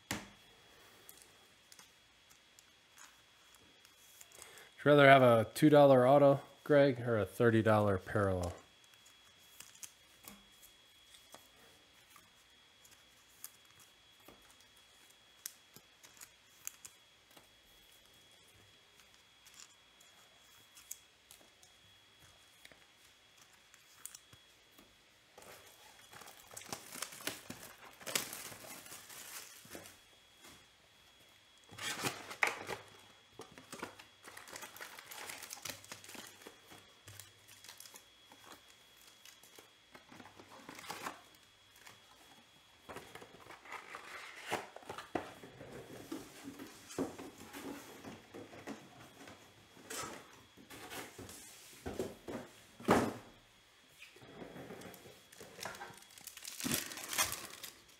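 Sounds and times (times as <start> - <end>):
plastic wrapping tearing and crinkling: 8.4 - 11.5, 12.1 - 21.7, 22.5 - 24.4, 25.5 - 30.0, 31.6 - 42.0, 54.9 - 57.9.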